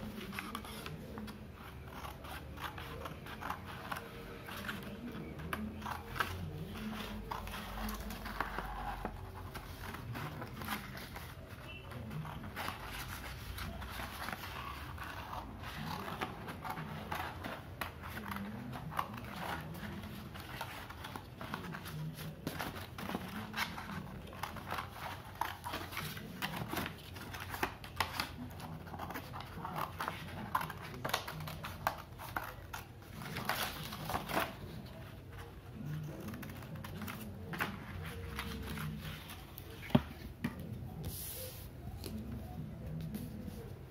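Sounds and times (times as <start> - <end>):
scissors snipping paper: 0.0 - 39.7
paper rustling: 0.0 - 43.9.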